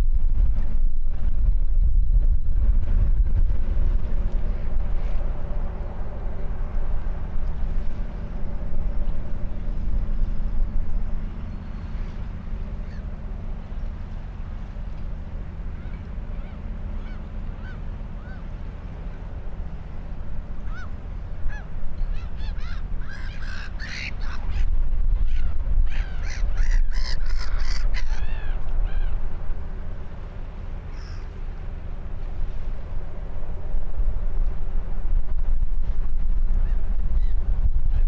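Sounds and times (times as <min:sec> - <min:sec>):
low rumble: 0:00.0 - 0:38.0
geese calling: 0:20.7 - 0:24.7, 0:25.3 - 0:28.5.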